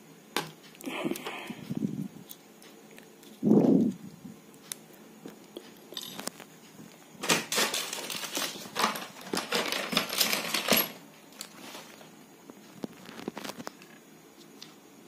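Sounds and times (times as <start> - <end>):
rustling crackling and knocks: 6.0 - 14.0.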